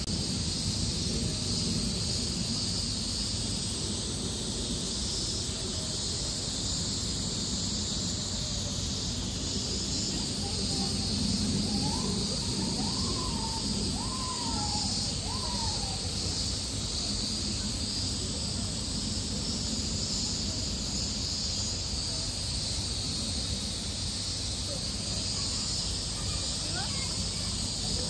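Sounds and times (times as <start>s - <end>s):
outdoor hiss: 0.0s - 28.0s.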